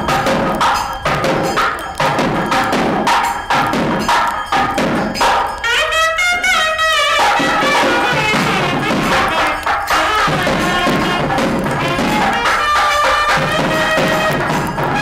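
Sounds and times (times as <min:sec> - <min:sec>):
drum beating: 0:00.0 - 0:15.0
wind instrument melody: 0:00.0 - 0:15.0.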